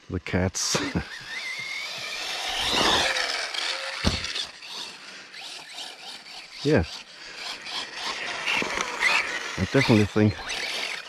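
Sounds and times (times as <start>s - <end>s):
rc car motor whirring: 0.7s - 11.0s
thump: 4.0s - 4.4s.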